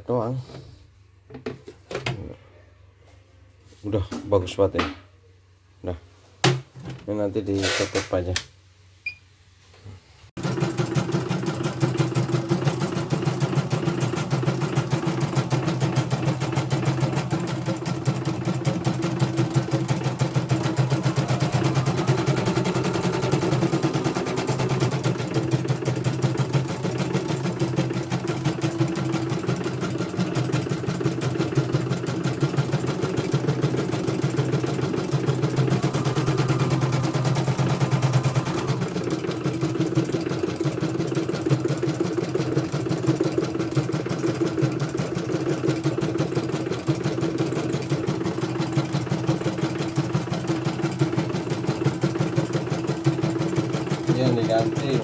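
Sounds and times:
machine drive hum: 10.4 - 40.4.

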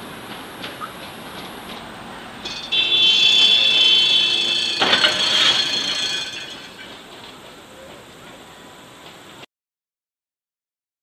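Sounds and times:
tram wheels squealing on rails: 0.0 - 9.4
tram crashing into car: 2.4 - 7.5.

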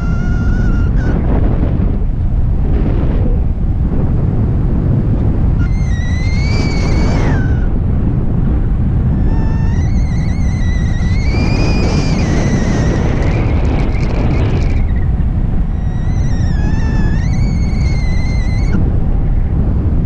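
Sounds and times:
high wavering whistle: 0.0 - 1.4, 5.6 - 7.7, 9.2 - 15.0, 15.7 - 18.9
wind buffeting microphone: 0.0 - 20.0.

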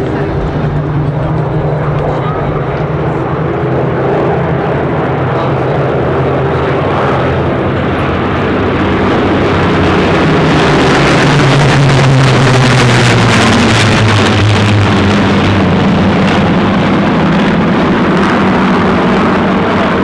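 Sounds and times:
piston aircraft engines humming: 0.0 - 20.0.

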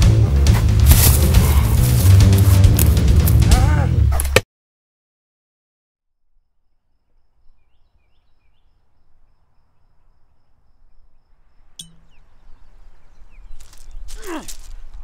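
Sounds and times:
faint bird chirps: 6.5 - 14.2.

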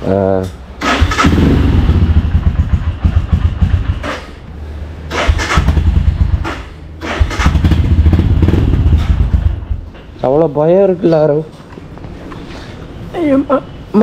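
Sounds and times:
motorcycle engine revving: 0.8 - 9.9.

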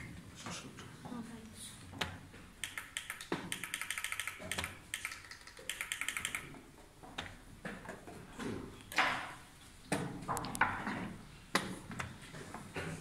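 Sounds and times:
chess clock clicking: 2.6 - 6.5.

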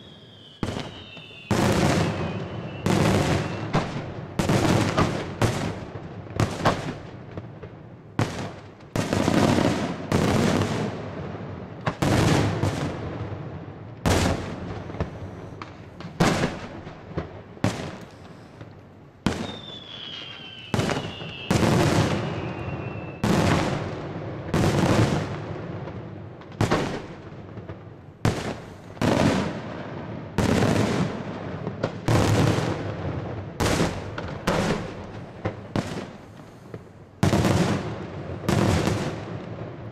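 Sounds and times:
faint falling whistle: 0.0 - 3.8, 19.4 - 23.2.

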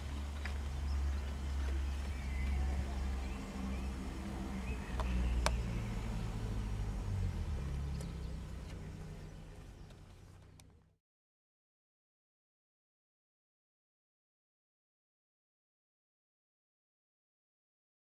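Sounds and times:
low rumble with hum: 0.0 - 11.0.

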